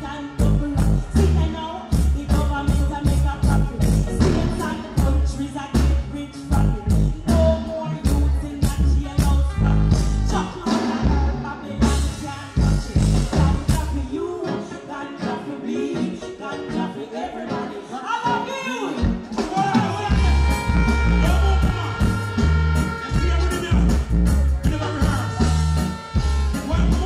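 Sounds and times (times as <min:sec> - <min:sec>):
bass line: 0:00.0 - 0:14.3, 0:19.0 - 0:27.0
drum beat: 0:19.1 - 0:27.0.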